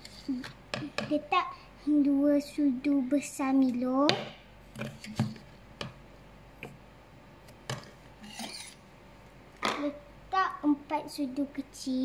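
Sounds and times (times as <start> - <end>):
spoon scraping: 8.2 - 8.8.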